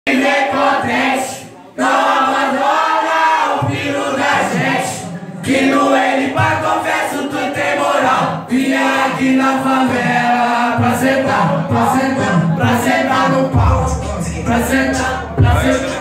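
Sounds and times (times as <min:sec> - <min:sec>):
bass-heavy beat: 0:09.1 - 0:16.0.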